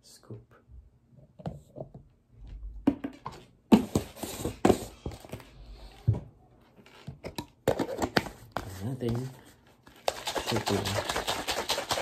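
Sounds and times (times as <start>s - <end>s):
powder rustle: 8.6s - 12.0s.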